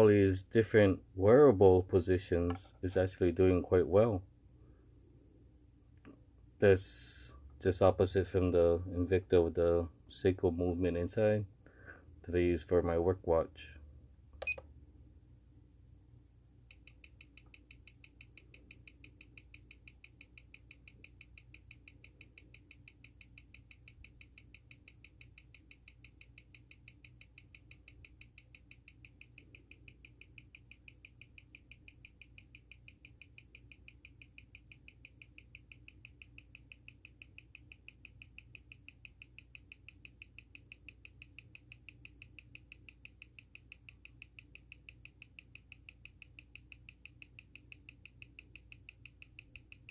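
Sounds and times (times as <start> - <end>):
watch ticking: 16.6 - 49.9.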